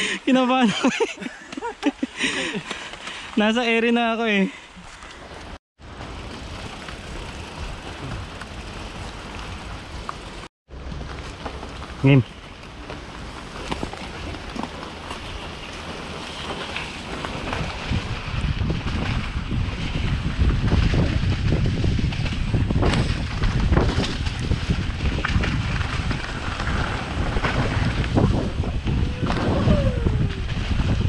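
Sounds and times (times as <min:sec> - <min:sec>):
low rumble of bike ride: 0:04.7 - 0:31.0
wind buffeting microphone: 0:17.1 - 0:31.0.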